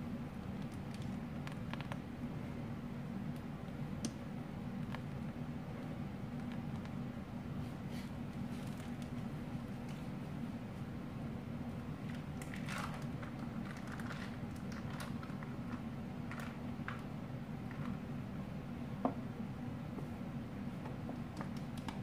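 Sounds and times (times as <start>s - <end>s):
steady low hum: 0.0s - 22.0s
plastic piping bag squishing: 12.0s - 17.0s.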